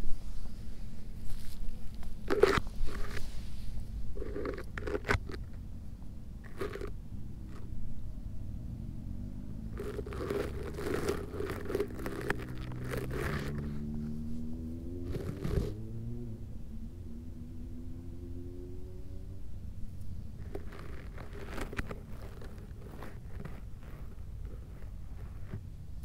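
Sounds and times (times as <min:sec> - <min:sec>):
dry grass rustling: 0:06.4 - 0:06.9, 0:09.8 - 0:15.8, 0:20.4 - 0:25.6.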